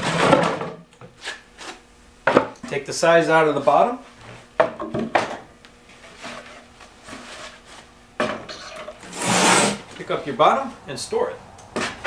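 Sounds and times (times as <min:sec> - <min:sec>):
panel scraping: 0:08.5 - 0:10.2.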